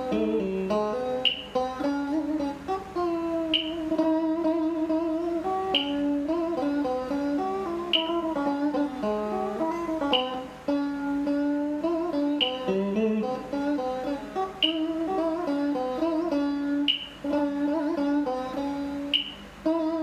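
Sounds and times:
electric guitar melody: 0.0s - 20.0s
short sharp click: 1.2s - 1.5s, 10.1s - 10.4s, 12.4s - 12.6s.

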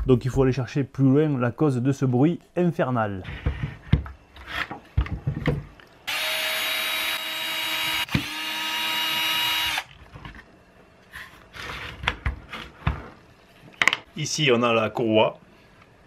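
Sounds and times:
cordless drill whirring: 6.1s - 9.9s.

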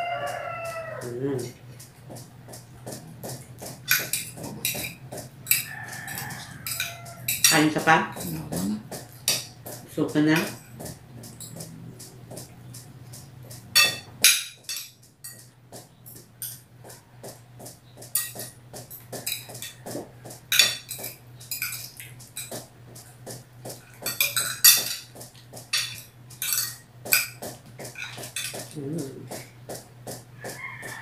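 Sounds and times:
steady low hum: 0.0s - 31.0s
cutlery clinking on glass plates: 3.8s - 9.6s, 13.5s - 15.5s, 18.1s - 18.6s, 19.2s - 22.6s, 23.9s - 29.4s.

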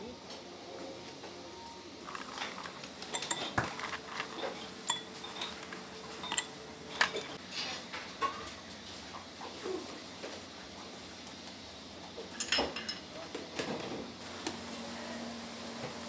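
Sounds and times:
dishes and cutlery clinking: 2.1s - 8.6s, 12.3s - 13.1s.

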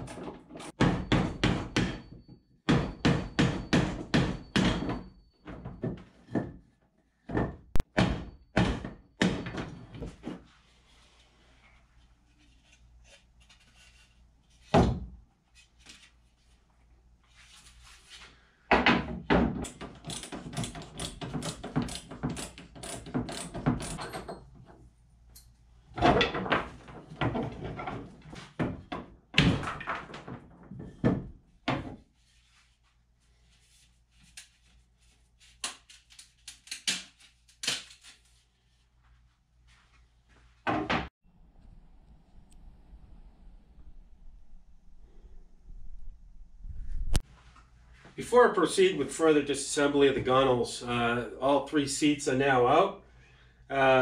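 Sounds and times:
wooden frames knocking and clattering: 0.0s - 10.4s, 18.7s - 24.8s, 25.9s - 32.1s.

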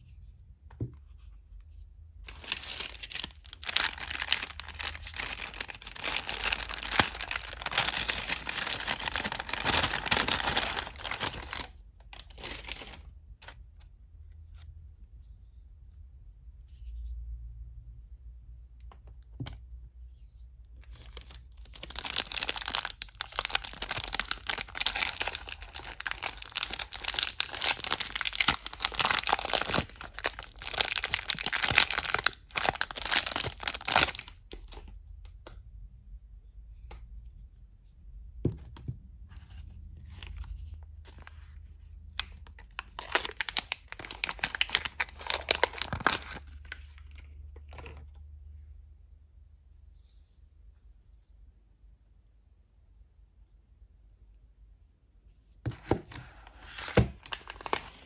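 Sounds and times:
wrappers crinkling and tearing: 2.2s - 13.6s, 21.0s - 34.4s, 42.1s - 48.0s, 56.6s - 58.0s.

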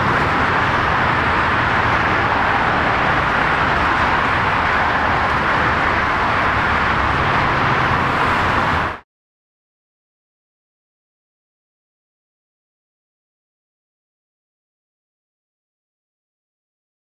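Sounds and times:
jet engines running: 0.0s - 9.0s.

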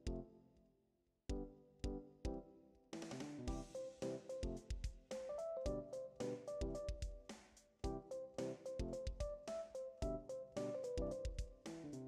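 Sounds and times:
instrumental music with a beat: 3.0s - 12.0s.

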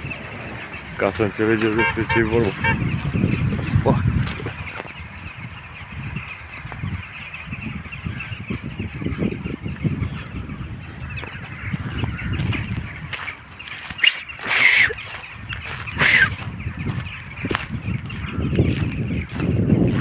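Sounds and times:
rooks cawing: 4.6s - 19.4s.

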